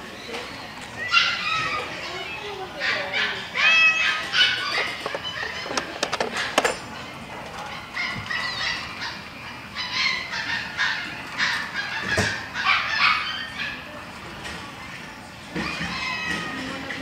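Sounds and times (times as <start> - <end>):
animals making high-pitched calls: 0.2 - 14.0, 14.8 - 17.0.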